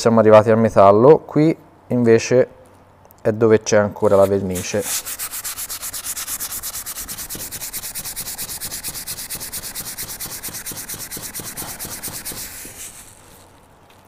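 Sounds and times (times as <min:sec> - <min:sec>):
sponge scrubbing metal handle: 0:04.1 - 0:13.1.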